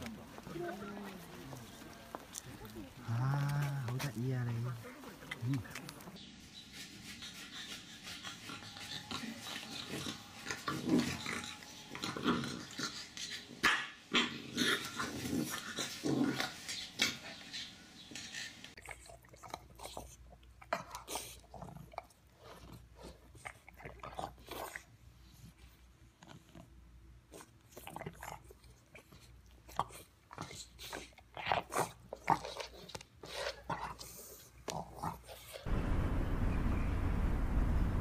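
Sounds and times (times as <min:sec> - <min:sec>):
puppies growling and yapping: 0:07.0 - 0:20.1.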